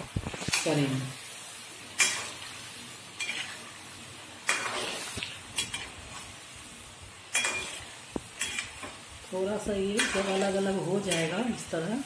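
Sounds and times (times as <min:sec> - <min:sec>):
dough sizzling in hot oil: 0:00.0 - 0:12.0
metal skimmer scraping a pan: 0:07.3 - 0:08.9, 0:09.9 - 0:11.5.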